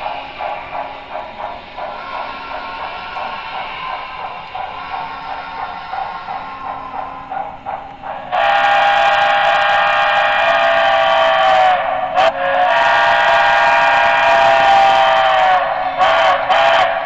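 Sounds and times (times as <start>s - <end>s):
steam whistle chime blasts: 8.4s - 17.0s.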